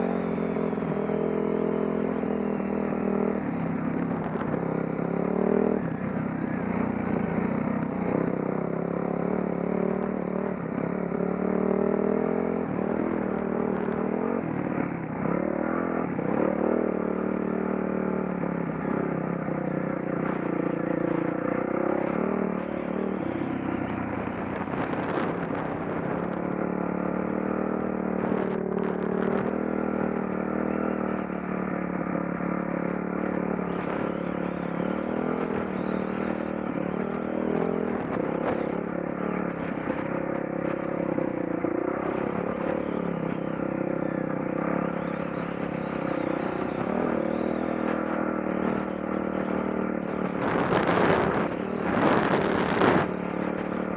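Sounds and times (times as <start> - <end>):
dirt bike engine revving: 0.0 - 53.9.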